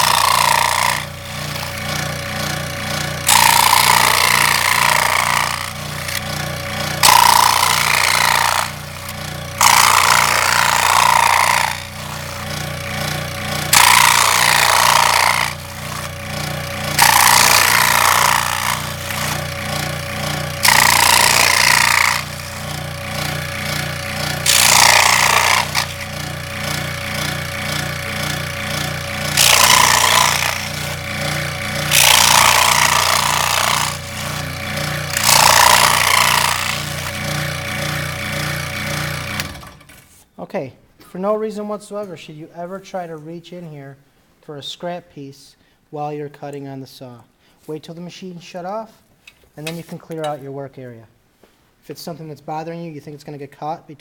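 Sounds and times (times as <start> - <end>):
saw blade rasping through cardboard: 0.0 - 39.6
scroll saw humming: 0.0 - 40.0.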